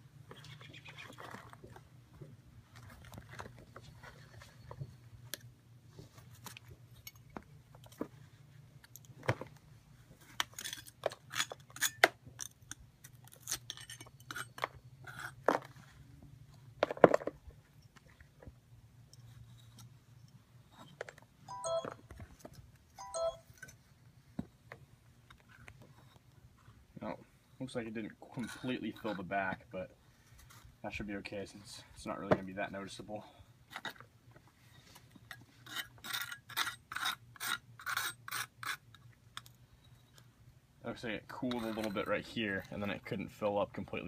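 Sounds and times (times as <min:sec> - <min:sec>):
squeaky scrapes: 0:41.3 - 0:42.8.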